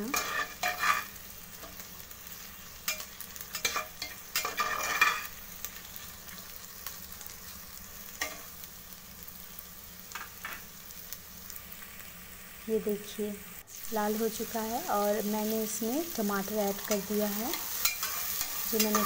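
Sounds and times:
spatula scraping pot: 0.0s - 1.1s, 3.6s - 5.3s
onions sizzling in oil: 0.0s - 19.0s.

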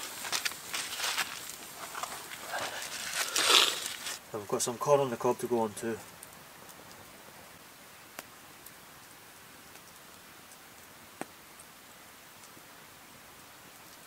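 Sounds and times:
campfire crackling: 0.0s - 14.0s
sharp fire pops: 8.1s - 8.8s.

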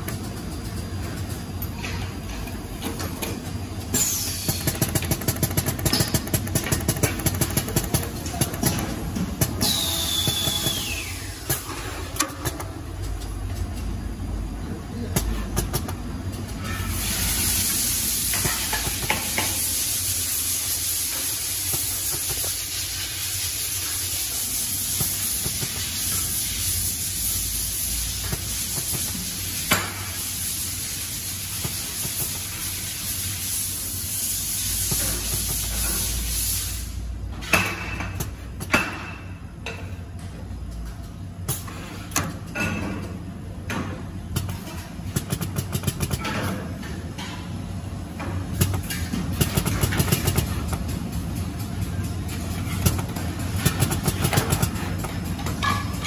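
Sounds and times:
steady machine hiss: 3.7s - 12.4s, 16.6s - 37.2s
rapid machine clicking: 4.4s - 10.9s, 44.3s - 46.3s, 48.6s - 55.5s.

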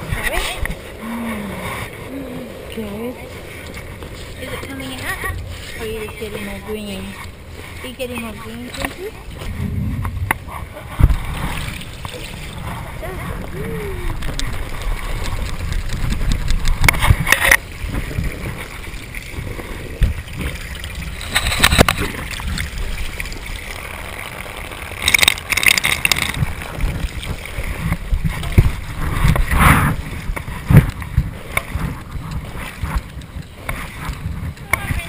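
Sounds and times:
hose water splashing: 0.0s - 35.0s
camera rumble and knocks: 8.0s - 23.4s, 25.0s - 35.0s.

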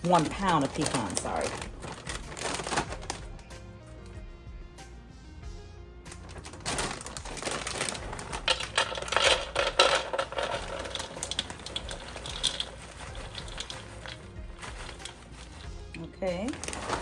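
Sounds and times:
pecans clattering into bowl: 0.0s - 3.1s, 6.6s - 17.0s
plastic bag rustling: 0.0s - 3.5s, 6.1s - 17.0s.

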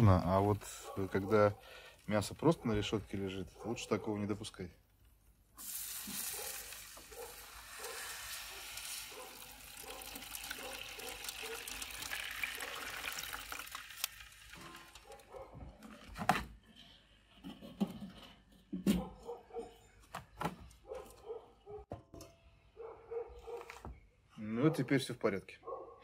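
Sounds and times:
water hissing on hot grill pan: 5.6s - 15.0s.

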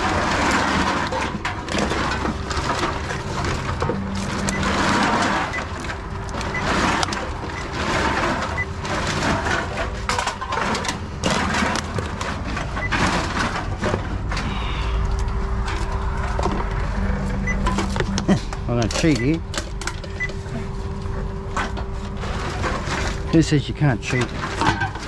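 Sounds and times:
containers rattling through machine: 0.0s - 14.5s, 21.6s - 25.0s
steady machine hum: 0.0s - 25.0s.

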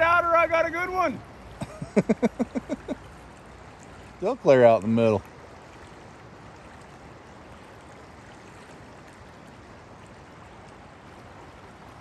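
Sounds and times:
river water rushing: 0.0s - 12.0s.

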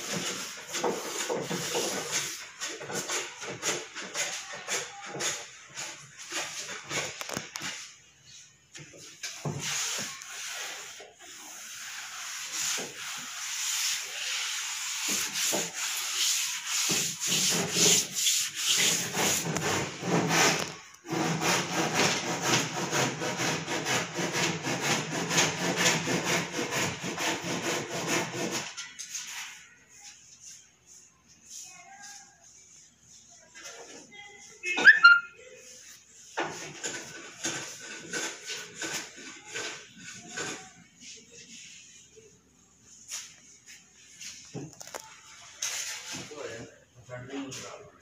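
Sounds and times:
tool rasping on wood: 9.7s - 28.8s, 36.7s - 40.7s.

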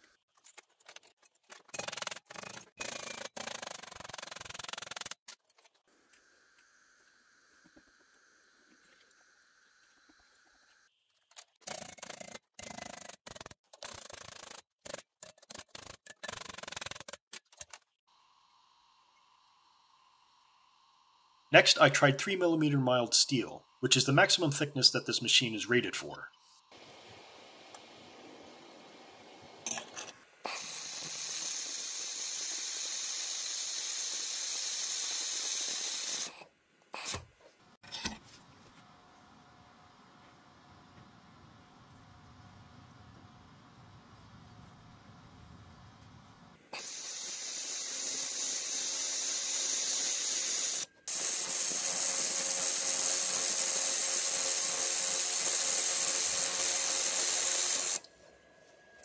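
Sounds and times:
laser welder hiss: 30.5s - 36.4s, 46.8s - 58.0s.

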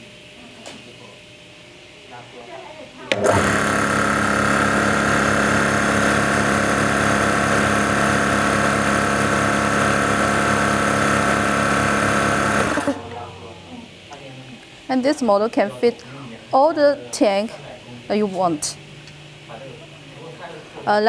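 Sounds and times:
air compressor humming: 3.0s - 21.0s.

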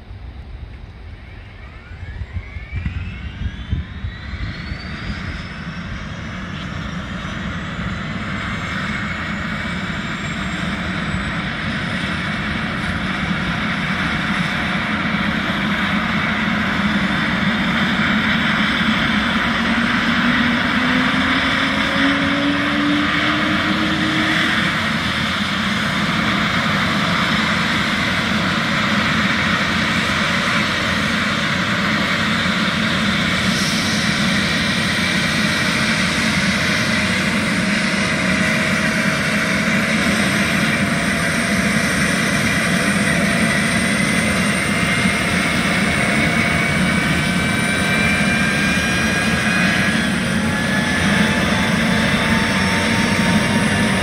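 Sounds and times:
turbine engine whine: 0.0s - 54.0s
lower rising tone: 0.7s - 6.4s, 18.5s - 25.5s.

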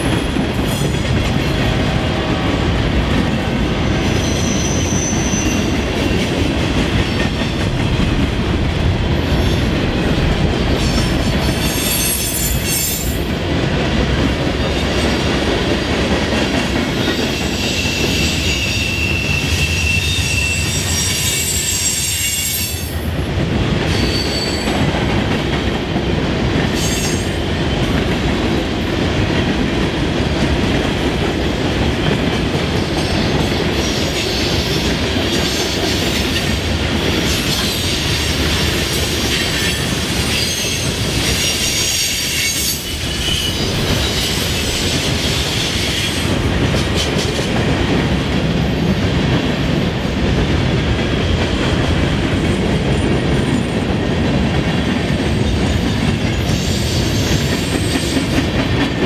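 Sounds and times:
freight train rumbling: 0.0s - 59.0s.

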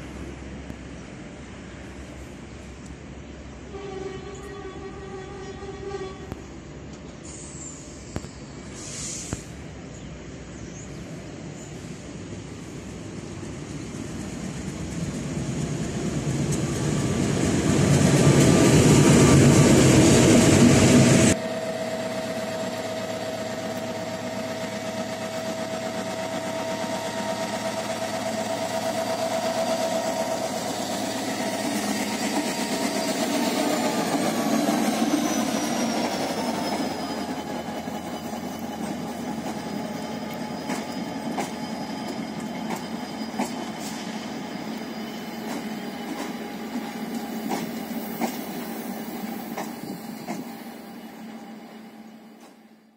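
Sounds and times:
diesel locomotive engine: 0.0s - 52.9s
train wheel clicks: 23.6s - 44.0s, 44.8s - 50.6s.

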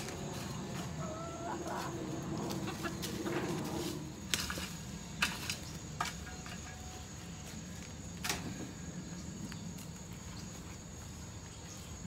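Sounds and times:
pitchfork knocking in wood chips: 3.0s - 6.9s.

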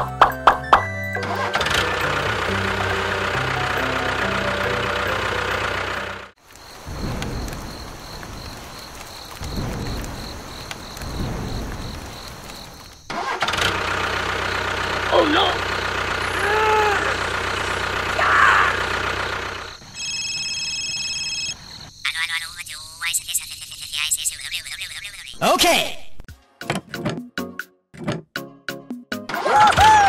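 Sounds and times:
tractor engine running: 0.0s - 22.3s
rain falling: 1.9s - 21.6s
low rumbles: 2.0s - 13.1s.

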